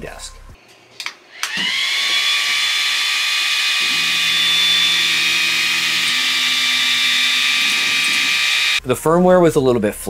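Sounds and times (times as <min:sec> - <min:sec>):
cooling fan high-pitched whine: 0:01.4 - 0:08.8.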